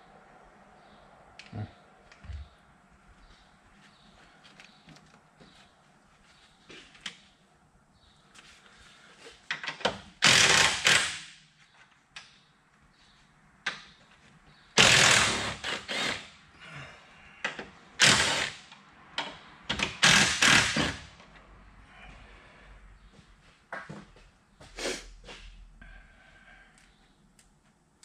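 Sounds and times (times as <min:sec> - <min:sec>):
cordless power tool bursts: 0:10.2 - 0:11.3, 0:14.8 - 0:16.3, 0:18.0 - 0:18.7, 0:19.8 - 0:21.1.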